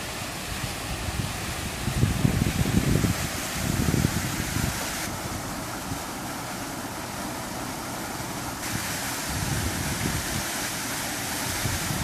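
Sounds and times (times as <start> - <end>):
steady rushing hiss: 0.0 - 12.0
wind buffeting microphone: 0.7 - 5.4, 8.6 - 10.6, 11.5 - 12.0.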